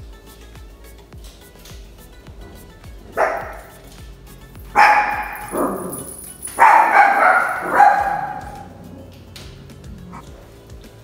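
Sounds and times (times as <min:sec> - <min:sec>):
background music: 0:00.0 - 0:11.0
dog barking: 0:03.1 - 0:03.8, 0:04.7 - 0:09.1.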